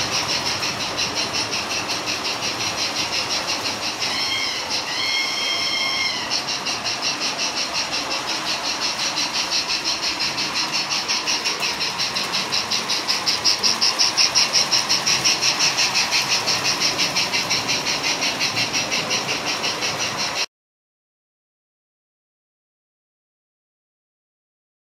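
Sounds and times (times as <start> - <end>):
steam locomotive chuffing: 0.0 - 20.5
train rumbling on track: 0.0 - 20.5
train whistle: 4.1 - 6.4.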